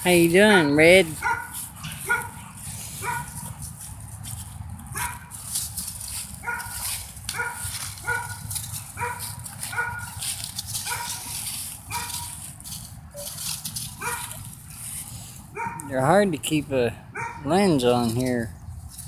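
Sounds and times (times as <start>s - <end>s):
dog barking high-pitched: 0.6s - 2.4s, 3.0s - 3.4s, 4.9s - 5.3s, 6.4s - 10.2s, 10.8s - 11.3s, 11.9s - 12.4s, 14.0s - 14.4s, 15.5s - 15.9s, 17.2s - 17.5s.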